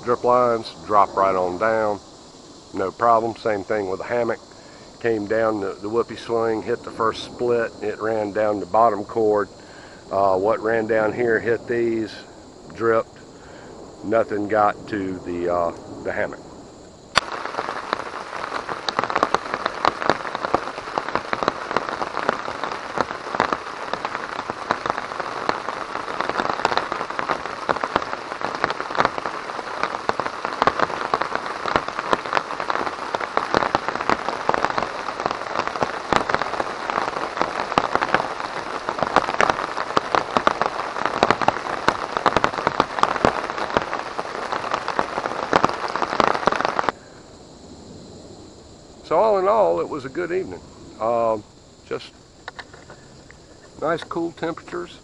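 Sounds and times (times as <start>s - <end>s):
rain falling on a tarp: 0.0s - 16.4s, 17.1s - 47.1s, 49.0s - 55.0s.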